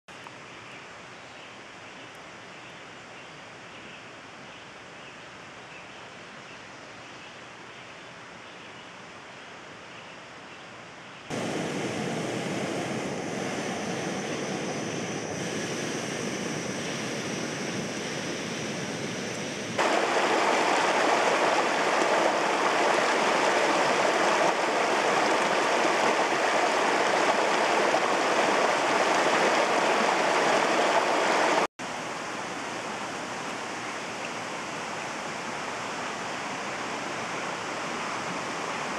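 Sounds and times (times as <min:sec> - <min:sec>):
soft outdoor hiss: 0:00.1 - 0:38.9
gas burner hissing: 0:11.3 - 0:20.2.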